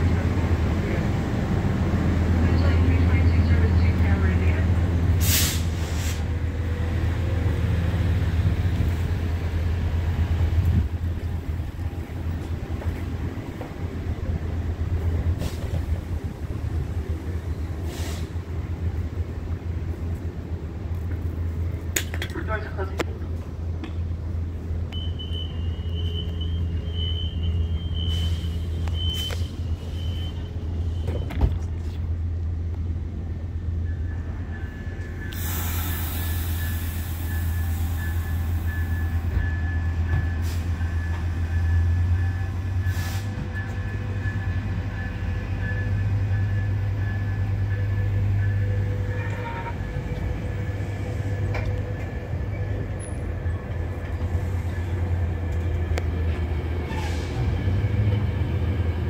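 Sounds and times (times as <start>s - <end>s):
train engine rumbling: 0.0s - 59.0s
air brakes hissing: 5.2s - 6.3s, 17.8s - 18.4s, 27.9s - 31.2s, 35.3s - 39.1s, 40.3s - 40.8s, 42.8s - 43.4s, 56.9s - 57.6s.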